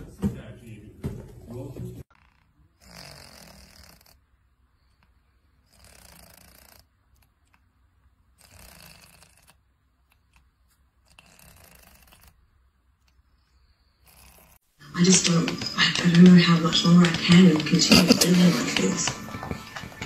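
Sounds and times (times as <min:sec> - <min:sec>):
cat snoring softly: 0:02.2 - 0:04.2, 0:04.8 - 0:07.3, 0:08.4 - 0:10.4, 0:11.0 - 0:12.4, 0:13.8 - 0:14.6.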